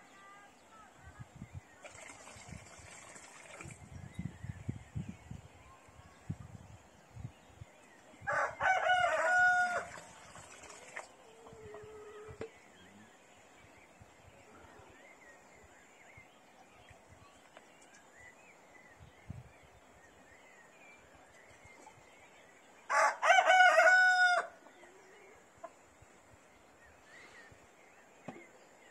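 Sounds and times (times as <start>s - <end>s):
rooster crowing: 8.3s - 10.0s, 22.9s - 24.6s.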